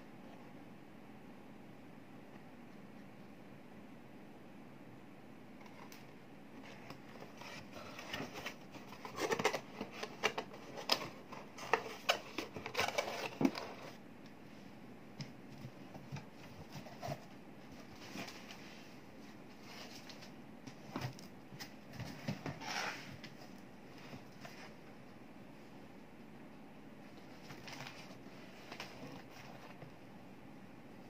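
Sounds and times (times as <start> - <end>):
cardboard boxes scraping and rustling: 6.6 - 14.0, 21.9 - 24.8.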